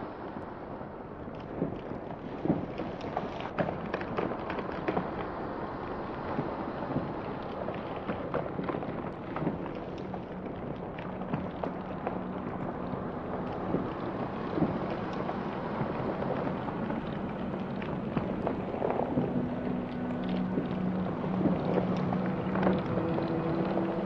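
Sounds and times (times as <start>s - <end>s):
heaving waves: 12.2s - 24.0s.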